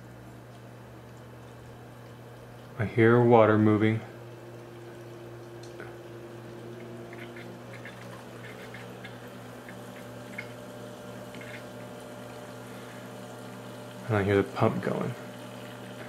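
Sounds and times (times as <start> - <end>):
pump humming: 0.0 - 16.0
water moving through pipes: 0.1 - 16.0
faint bubbling ticks: 4.3 - 14.0.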